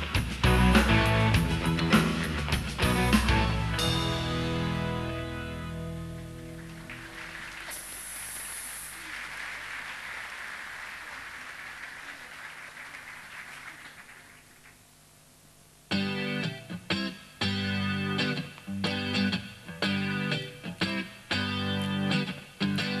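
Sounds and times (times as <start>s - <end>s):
rock band chord: 0.0s - 7.1s, 15.9s - 23.0s
soft hissing wash: 6.7s - 14.7s.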